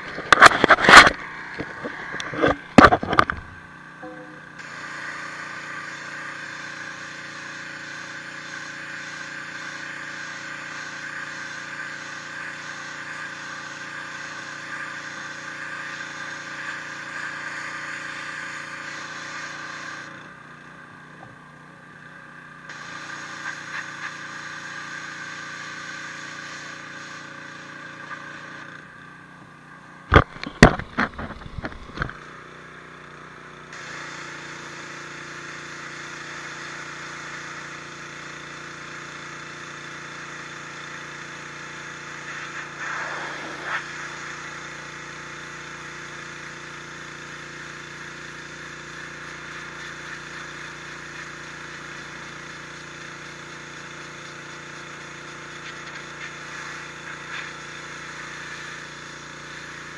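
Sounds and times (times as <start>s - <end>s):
pressure washer motor running: 0.0s - 59.9s
pressure washer spray hissing: 4.4s - 20.4s, 22.0s - 28.8s, 33.7s - 59.9s.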